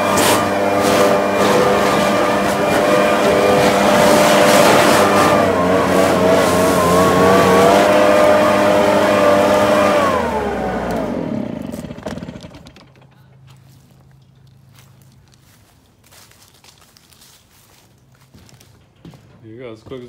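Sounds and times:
leaf blower running: 0.0s - 13.7s.

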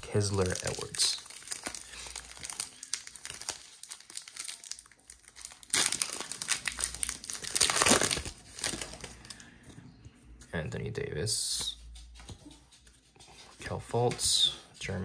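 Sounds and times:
foil wrapper crinkling: 0.0s - 9.4s.

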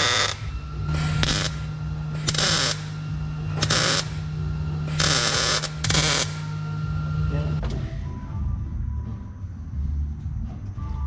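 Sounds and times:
crackling welding arc bursts: 0.0s - 7.2s
steady low hum: 0.0s - 11.0s.

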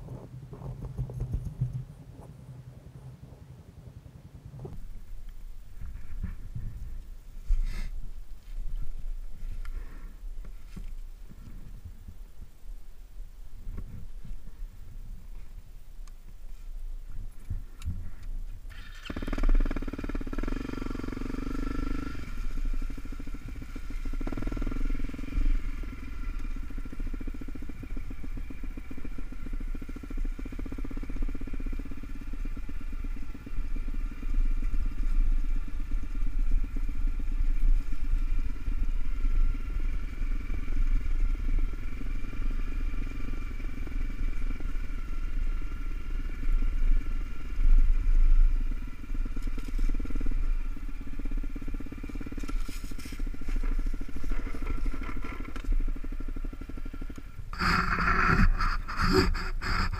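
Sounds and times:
motorcycle engine running: 0.0s - 13.0s, 13.6s - 59.9s.

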